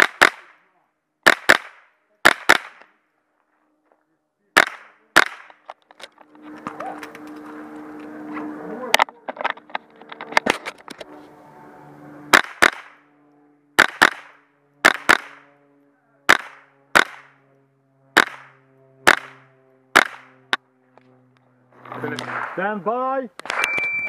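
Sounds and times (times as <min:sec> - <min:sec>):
rifle shots: 0:00.0 - 0:00.6, 0:01.2 - 0:02.9, 0:04.6 - 0:05.6, 0:12.3 - 0:13.0, 0:13.8 - 0:15.5, 0:16.3 - 0:17.4, 0:18.1 - 0:20.4, 0:22.2 - 0:22.6.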